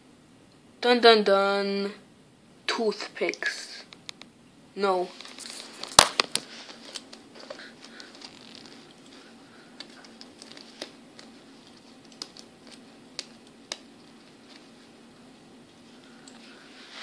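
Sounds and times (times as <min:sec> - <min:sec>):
low steady hum: 0:00.0 - 0:17.0
light scratching: 0:05.1 - 0:13.4.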